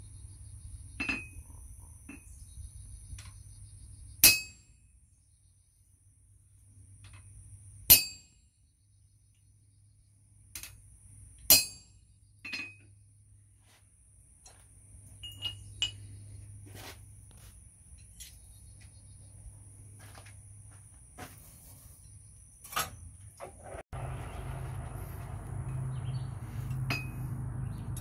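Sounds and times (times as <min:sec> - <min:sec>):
hammer striking chisel on steel: 0:26.6 - 0:27.4
light metal clinks: 0:26.6 - 0:28.0.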